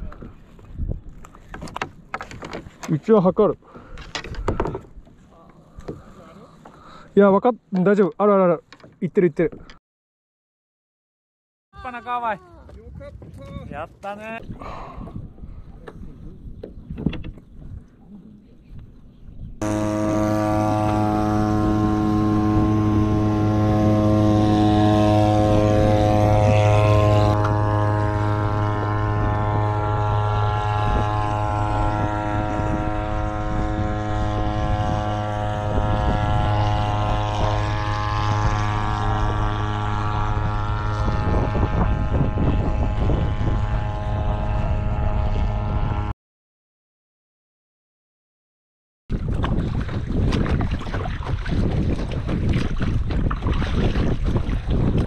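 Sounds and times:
boat motor running: 0:19.6 - 0:46.1, 0:49.2 - 0:55.0.

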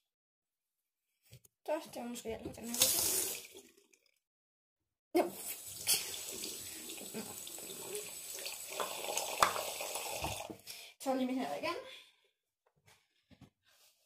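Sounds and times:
tap water running into sink: 0:02.6 - 0:03.9, 0:05.4 - 0:10.6.

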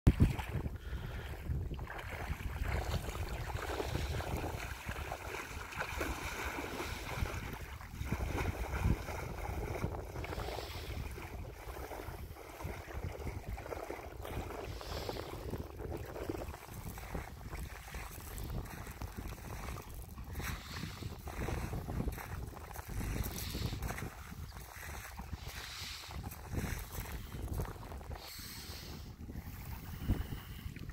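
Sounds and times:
person wading in water: 0:00.1 - 0:30.9
small waves lapping: 0:00.1 - 0:30.9
wind buffeting microphone: 0:00.1 - 0:30.9.

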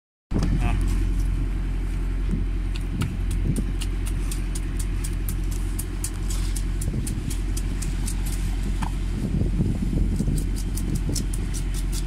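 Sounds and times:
boat engine droning: 0:00.4 - 0:12.0
blade scraping fish scales: 0:10.1 - 0:12.0.

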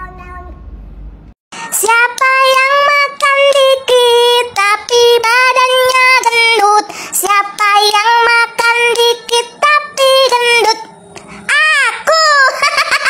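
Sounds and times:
high-pitched voice singing: 0:07.3 - 0:12.7.

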